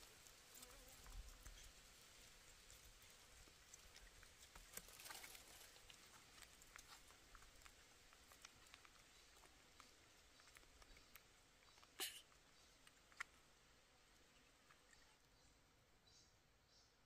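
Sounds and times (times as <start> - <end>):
faint ticks: 3.6 - 12.2.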